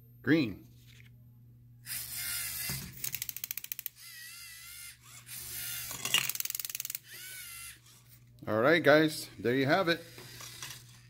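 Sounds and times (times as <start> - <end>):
rapid gear clicking: 2.6 - 4.0, 5.1 - 7.4
wavering motor whine: 3.9 - 8.2.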